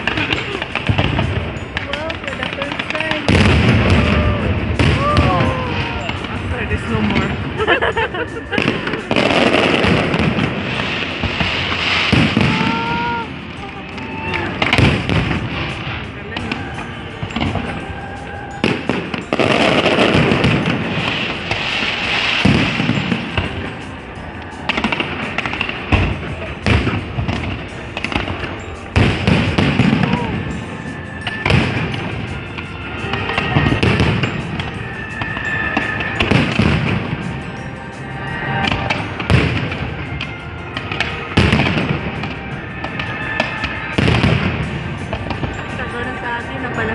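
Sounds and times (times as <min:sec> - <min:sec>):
crackle of firework stars: 0:00.0 - 0:07.6, 0:08.4 - 0:46.9
music: 0:00.0 - 0:46.9
heavy firework bang: 0:02.4 - 0:07.4, 0:08.6 - 0:13.2, 0:14.3 - 0:17.7, 0:18.6 - 0:23.7, 0:40.8 - 0:45.6
firework shells bursting: 0:08.3 - 0:46.9.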